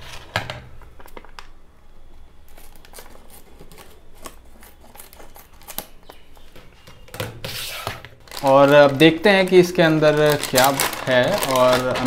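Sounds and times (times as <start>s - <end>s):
packaging rustling: 2.4s - 12.0s.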